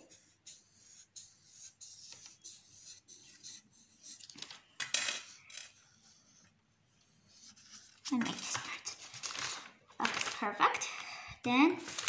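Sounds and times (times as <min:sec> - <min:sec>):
marker scratching on paper: 0:00.0 - 0:04.4, 0:05.1 - 0:09.6
paper rustling: 0:07.3 - 0:11.1, 0:11.8 - 0:12.0.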